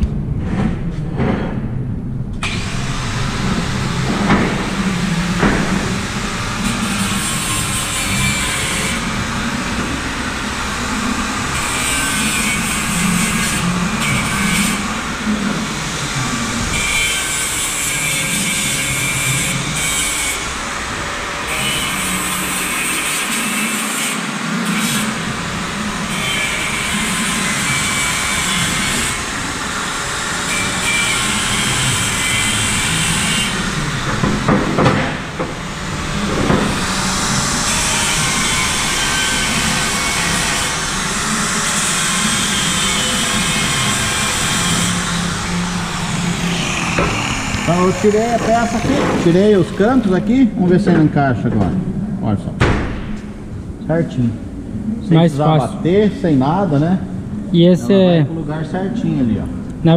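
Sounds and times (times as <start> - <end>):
angle grinder grinding steel: 2.4 - 34.2, 35.2 - 50.5
loud knocks: 4.0 - 6.1, 33.9 - 37.2, 46.7 - 50.0, 50.9 - 51.9, 52.6 - 53.5.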